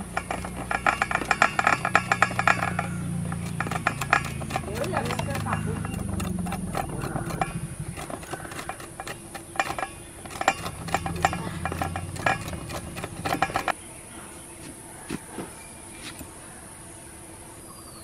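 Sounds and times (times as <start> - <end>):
rind rasping on a grater: 0.0 - 13.7.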